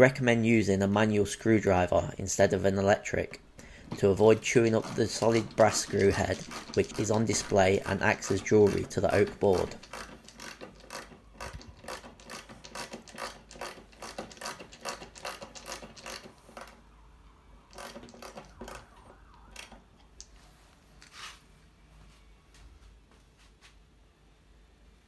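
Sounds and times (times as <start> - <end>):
screwdriver ratchet clicks: 4.6 - 16.7, 17.7 - 18.9.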